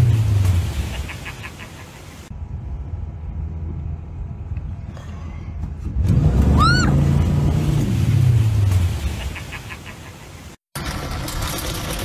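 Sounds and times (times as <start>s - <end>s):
motorboat engine: 10.8s - 12.0s.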